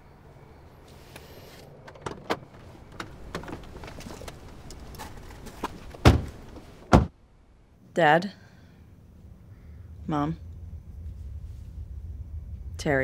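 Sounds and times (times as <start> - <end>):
people getting out of car: 1.8 - 7.1
car doors slamming: 5.6 - 7.2.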